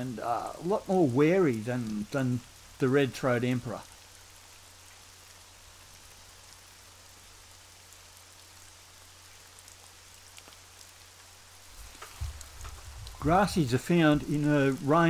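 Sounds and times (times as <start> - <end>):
crackling hiss: 0.0 - 15.0.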